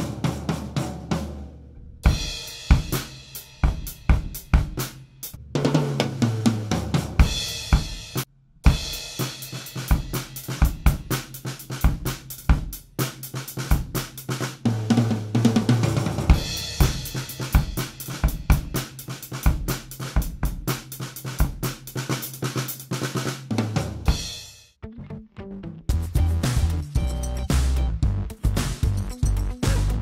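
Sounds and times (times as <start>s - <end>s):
tom drum fill: 0.0s - 12.7s, 14.7s - 20.7s
drum kit groove: 0.0s - 24.7s, 25.9s - 30.0s.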